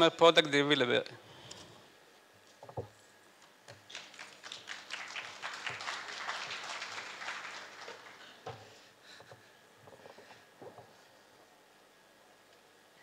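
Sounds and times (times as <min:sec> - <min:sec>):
audience applauding: 0:03.9 - 0:08.5.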